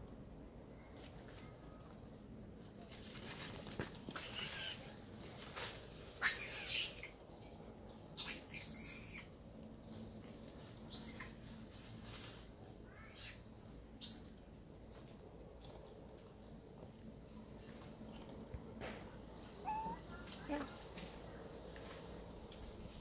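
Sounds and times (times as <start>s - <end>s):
squeaky animal calls: 6.2s - 7.2s, 19.6s - 20.1s.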